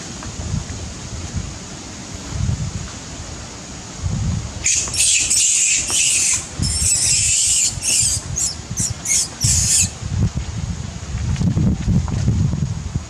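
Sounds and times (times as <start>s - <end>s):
macaque shrieking: 4.6s - 9.9s.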